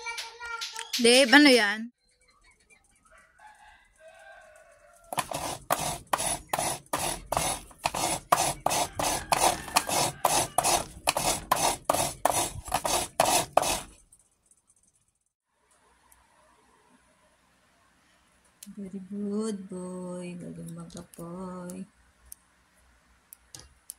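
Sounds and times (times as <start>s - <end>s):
coconut rasping on grater blade: 5.1s - 14.0s.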